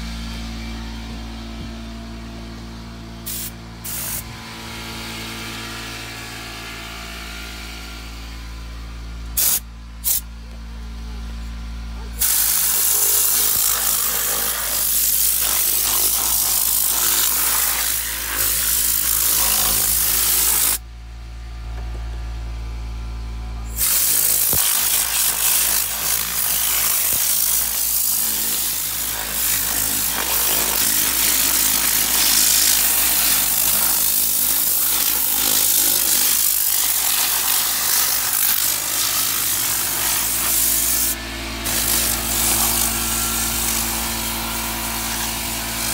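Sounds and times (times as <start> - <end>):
compressed air gun hissing: 3.2 - 4.3, 9.4 - 10.2, 12.2 - 20.8, 23.7 - 45.9.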